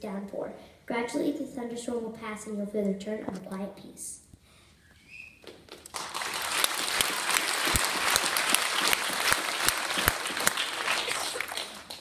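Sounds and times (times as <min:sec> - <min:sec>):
hands pattering like rain: 0:05.4 - 0:12.0
sharp claps: 0:05.4 - 0:12.0.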